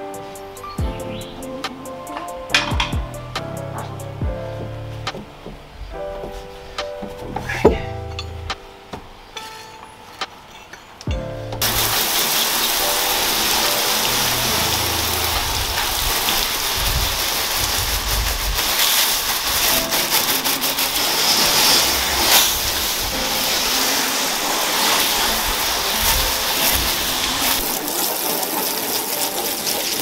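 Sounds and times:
guitar music: 0:00.0 - 0:05.5, 0:11.1 - 0:16.5
hose water spraying and splashing: 0:11.6 - 0:30.0.

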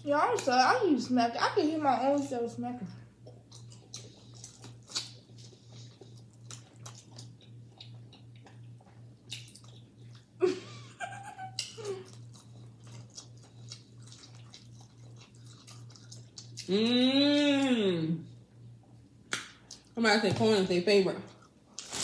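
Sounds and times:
chewing and lip-smacking: 0:03.1 - 0:10.4, 0:11.4 - 0:16.8, 0:18.5 - 0:20.0.

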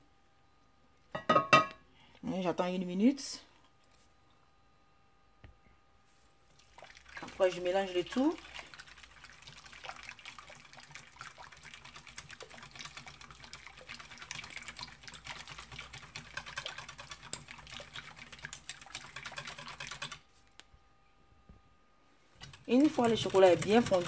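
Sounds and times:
whisk rattling against steel bowl: 0:10.5 - 0:20.2, 0:22.4 - 0:24.0.

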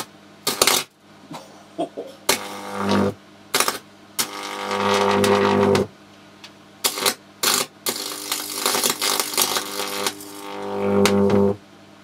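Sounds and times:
electric arc buzzing and crackling: 0:00.0 - 0:01.0, 0:02.2 - 0:05.9, 0:06.8 - 0:11.6.

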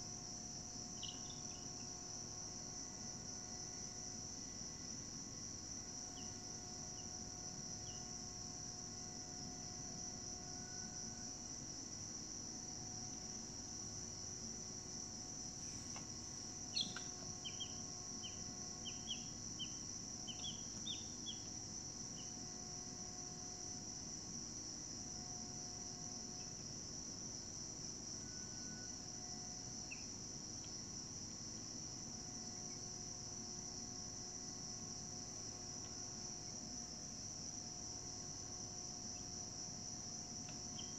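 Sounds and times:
crickets chirping: 0:00.0 - 0:40.9
bird chirping: 0:01.0 - 0:01.6, 0:16.7 - 0:21.5.

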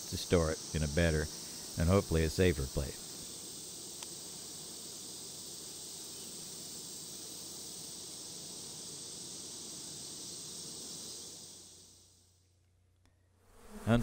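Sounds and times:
honeybees buzzing: 0:00.0 - 0:12.3, 0:13.4 - 0:14.0
constant hiss: 0:00.0 - 0:14.0.

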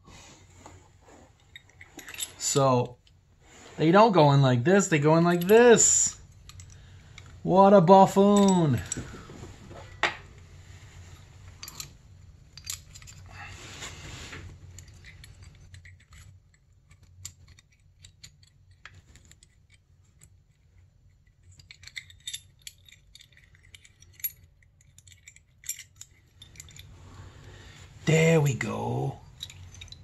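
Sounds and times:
small metal parts clicking and rattling: 0:01.4 - 0:03.2, 0:05.2 - 0:07.4, 0:08.4 - 0:10.4, 0:11.1 - 0:13.5, 0:14.5 - 0:27.0, 0:29.2 - 0:30.0.

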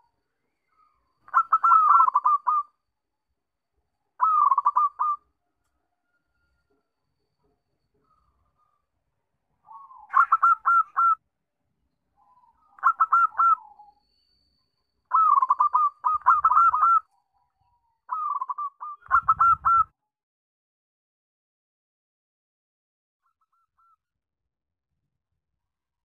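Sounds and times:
dove cooing: 0:01.3 - 0:02.7, 0:04.2 - 0:05.3, 0:09.6 - 0:11.2, 0:12.5 - 0:14.0, 0:15.1 - 0:17.0, 0:18.1 - 0:19.9.

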